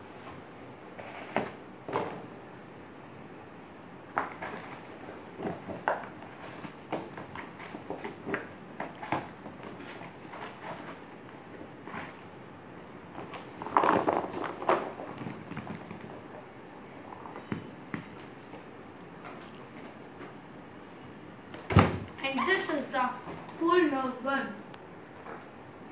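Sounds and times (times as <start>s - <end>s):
cardboard scraping and rustling: 0.0s - 2.3s, 4.2s - 11.1s, 13.2s - 16.2s.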